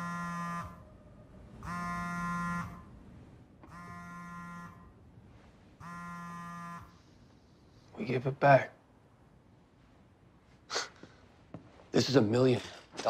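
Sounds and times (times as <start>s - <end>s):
low buzzy electronic tone pulsing: 0.0s - 5.0s, 5.8s - 7.0s.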